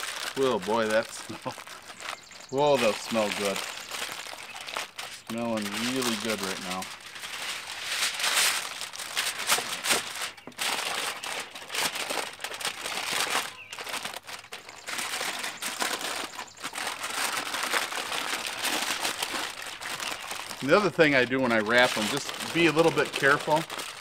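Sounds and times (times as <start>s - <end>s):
aluminum foil crinkling: 0.0s - 24.0s.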